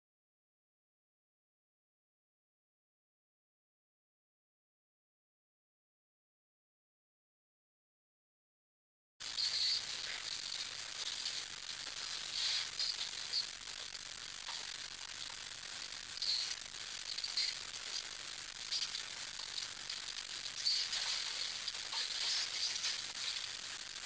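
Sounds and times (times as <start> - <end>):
steady hiss: 9.2 - 24.0.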